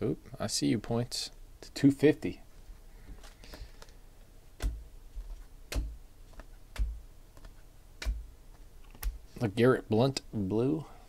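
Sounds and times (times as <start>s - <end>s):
cards tapping onto a stack: 3.2s - 4.0s, 4.6s - 9.2s.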